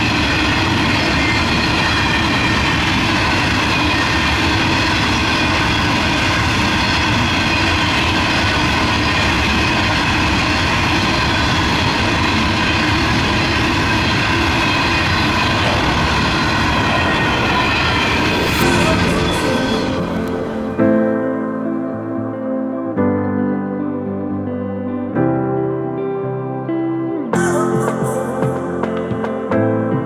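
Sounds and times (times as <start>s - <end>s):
steady ringing tones: 0.0s - 20.8s
train wagons rumbling on rails: 0.0s - 20.8s.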